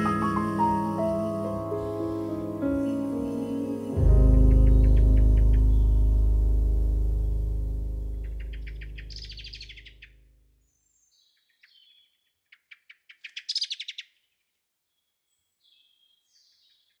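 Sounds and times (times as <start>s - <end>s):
low sustained music chord: 0.0s - 10.2s
songbird trilling: 8.2s - 10.1s
short bird chirps: 8.2s - 14.2s.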